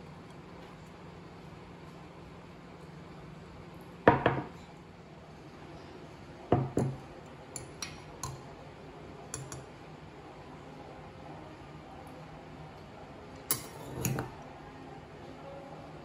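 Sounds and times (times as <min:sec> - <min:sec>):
metal spoon clinking on glass mug: 0:13.5 - 0:14.3.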